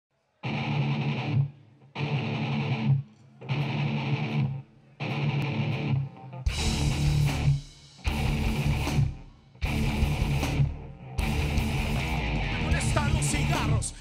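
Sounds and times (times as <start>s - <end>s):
distorted electric guitar chords: 0.4s - 14.0s.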